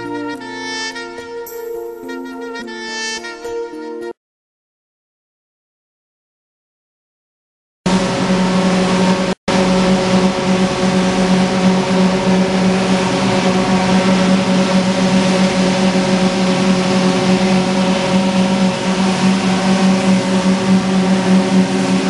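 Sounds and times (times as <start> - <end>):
factory machinery droning: 7.9 - 22.0.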